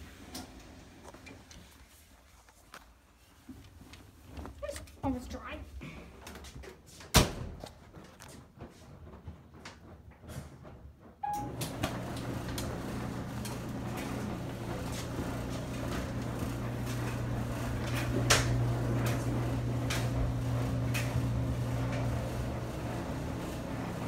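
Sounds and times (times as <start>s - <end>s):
dryer control panel beep: 11.2s - 12.0s
dryer motor humming: 11.2s - 24.0s.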